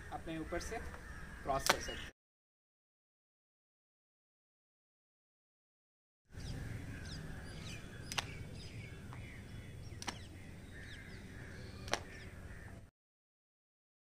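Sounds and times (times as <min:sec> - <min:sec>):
birds chirping: 0:00.0 - 0:02.2, 0:06.3 - 0:12.9
low outdoor rumble: 0:06.3 - 0:12.9
skipping rope slapping ground: 0:10.0 - 0:10.3, 0:11.9 - 0:12.1.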